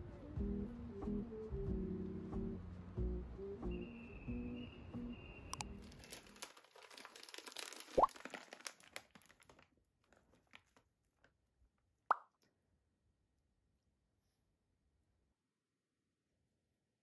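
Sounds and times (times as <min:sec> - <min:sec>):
plastic packets crinkling: 0:05.6 - 0:11.4.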